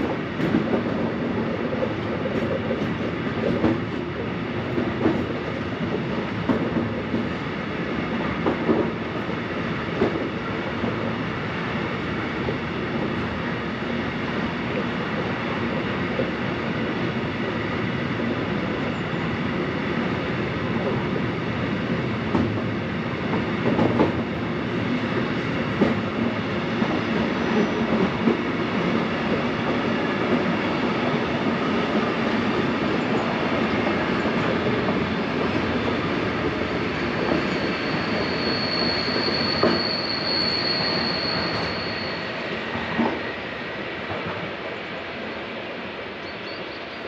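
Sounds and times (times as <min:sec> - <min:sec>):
wheels clacking on rail joints: 0:00.0 - 0:04.1, 0:22.2 - 0:24.4
train rumbling on rails: 0:00.0 - 0:47.0
high steady wheel squeal: 0:36.7 - 0:42.8.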